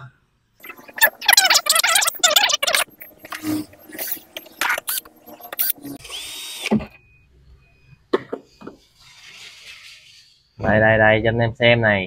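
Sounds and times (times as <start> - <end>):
cordless drill whirring: 3.3 - 6.7.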